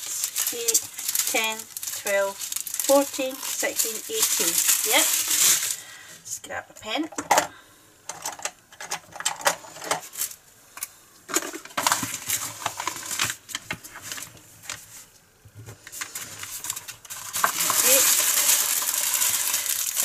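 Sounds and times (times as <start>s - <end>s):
small resin beads rattling: 0.0s - 5.8s, 16.6s - 20.0s
plastic bags rustling: 0.0s - 6.2s, 9.5s - 10.4s, 11.3s - 15.1s, 15.7s - 20.0s.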